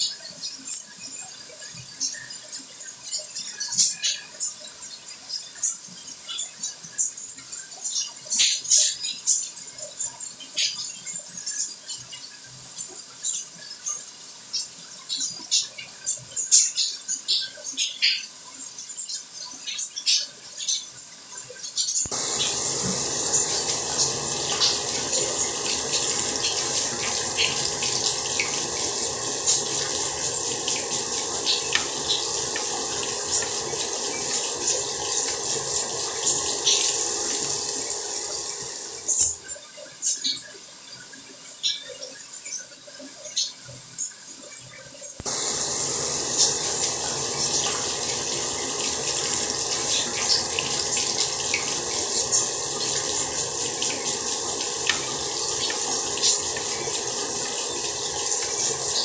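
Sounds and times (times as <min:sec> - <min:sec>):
water dripping: 0:22.1 - 0:39.4, 0:45.2 - 0:59.0
water trickling: 0:22.1 - 0:39.5, 0:45.2 - 0:59.0.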